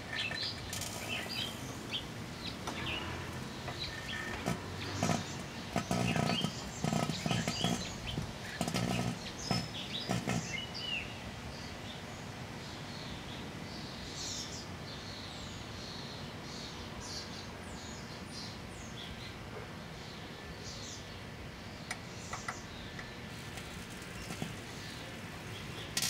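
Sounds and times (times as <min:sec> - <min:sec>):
microwave oven humming: 0:00.0 - 0:11.1, 0:22.8 - 0:26.0
birds chirping: 0:00.0 - 0:26.0
lighter flame sputtering: 0:00.1 - 0:10.6, 0:23.4 - 0:26.0.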